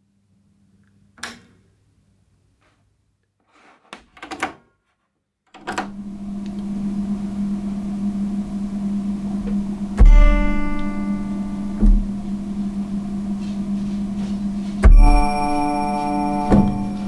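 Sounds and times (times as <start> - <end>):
electrical hum with hiss: 5.7 - 17.0.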